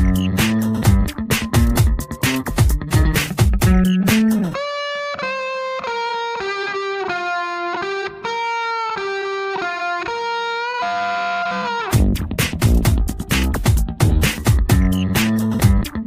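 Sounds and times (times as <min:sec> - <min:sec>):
drum beat: 0:00.0 - 0:04.6, 0:11.9 - 0:16.0
electric guitar melody: 0:00.0 - 0:16.0.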